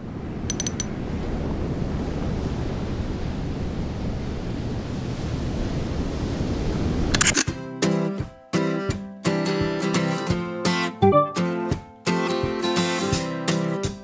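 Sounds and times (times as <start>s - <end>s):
sea surf washing in: 0.0s - 7.3s
wind on microphone: 0.0s - 7.3s
quick ticks: 0.5s - 0.9s.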